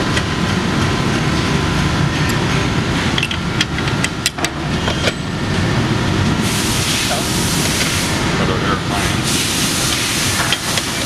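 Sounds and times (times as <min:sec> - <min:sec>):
steady rumble of shop noise: 0:00.0 - 0:11.0
hiss: 0:06.4 - 0:08.2, 0:08.9 - 0:11.0.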